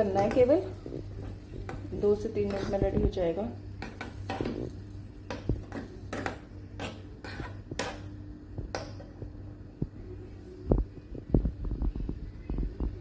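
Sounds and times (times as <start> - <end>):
low hum: 0.0 - 13.0
spoon scraping saucepan: 0.2 - 2.9, 5.6 - 8.0.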